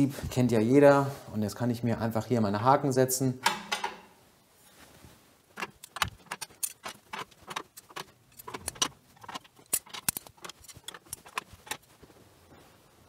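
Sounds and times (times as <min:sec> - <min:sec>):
metal hooks clicking into rails: 0:05.6 - 0:11.9.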